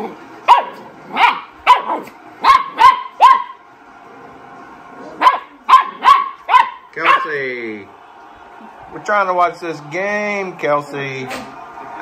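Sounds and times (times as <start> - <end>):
dogs barking: 0.0 - 3.6, 5.2 - 7.4.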